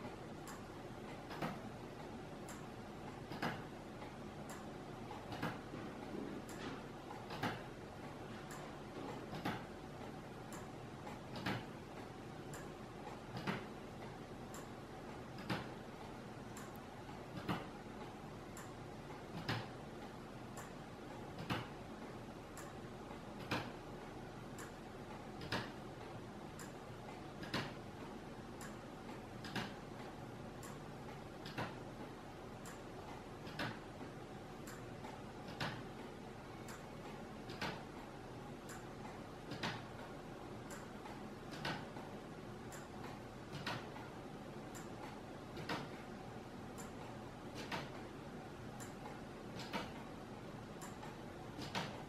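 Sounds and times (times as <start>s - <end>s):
wooden clock ticking: 6.4s - 44.1s.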